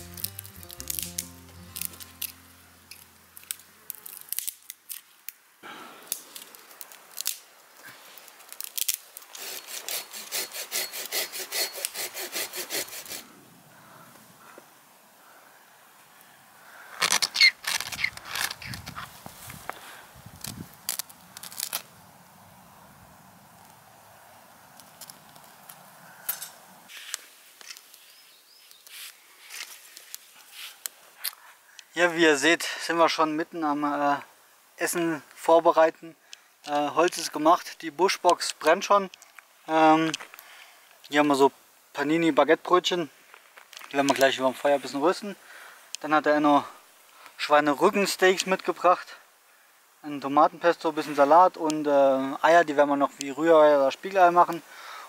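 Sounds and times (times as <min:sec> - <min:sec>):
dry twigs cracking: 0:00.0 - 0:05.4, 0:06.0 - 0:09.4, 0:17.0 - 0:19.8, 0:20.4 - 0:21.9, 0:24.7 - 0:28.0
wood fire crackling and popping: 0:03.4 - 0:05.1, 0:06.1 - 0:07.5, 0:08.2 - 0:09.4, 0:20.4 - 0:21.9
hand saw cutting wood: 0:09.3 - 0:13.2.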